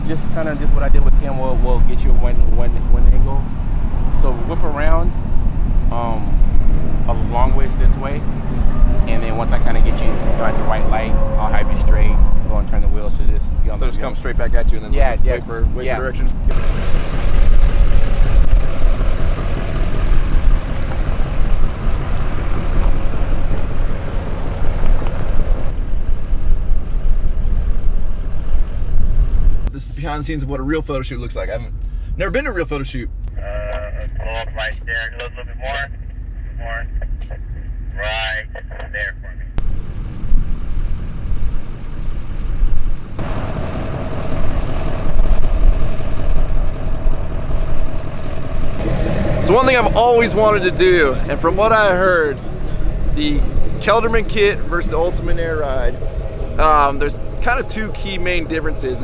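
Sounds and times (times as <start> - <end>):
heavy uneven low rumble: 0.0 - 59.0
pickup truck driving off: 16.4 - 29.6, 39.6 - 59.0.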